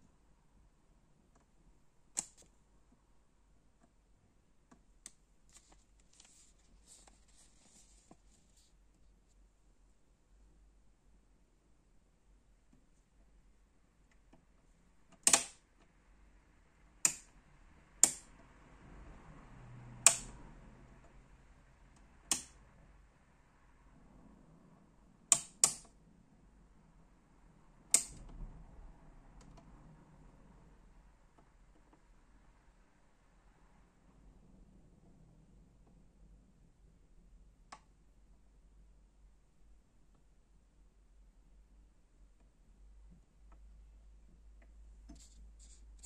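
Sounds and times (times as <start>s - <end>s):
rotary switches clicking: 2.2s - 2.5s, 15.1s - 15.6s, 17.0s - 17.4s, 18.0s - 18.4s, 20.0s - 20.4s, 22.0s - 22.6s, 25.3s - 26.0s, 27.9s - 28.4s
paper sheet rustling: 5.5s - 8.7s.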